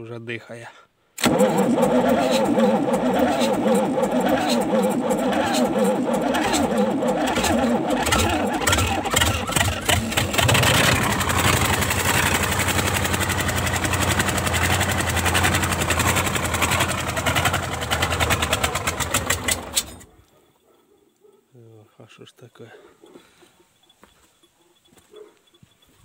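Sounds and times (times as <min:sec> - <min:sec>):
diesel engine cranking and chugging: 0:01.2 - 0:20.2.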